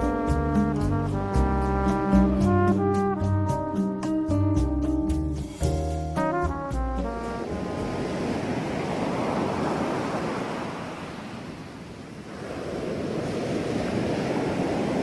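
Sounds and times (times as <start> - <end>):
ocean waves washing in: 5.4 - 15.0.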